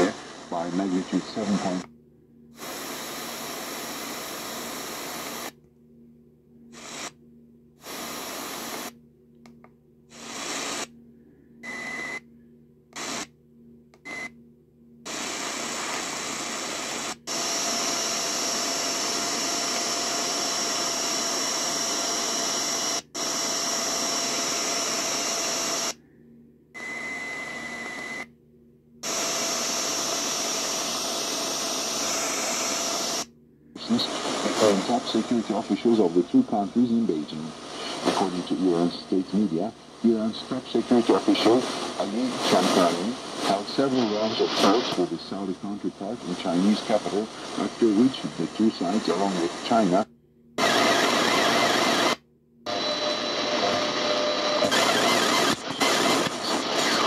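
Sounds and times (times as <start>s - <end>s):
radio static: 0.0s - 1.9s, 2.6s - 5.5s, 6.8s - 7.1s, 7.8s - 8.9s, 10.1s - 10.9s, 33.8s - 57.0s
short beeps: 11.6s - 12.2s.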